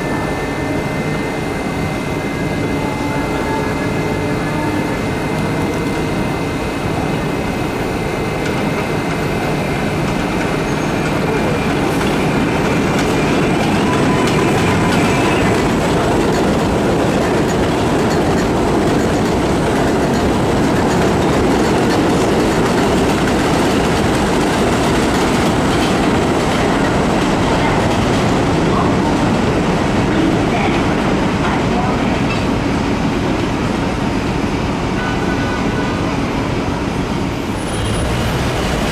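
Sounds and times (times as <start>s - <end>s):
subway train rumbling past: 0.0s - 38.9s
wheels clickety-clack: 10.0s - 32.6s.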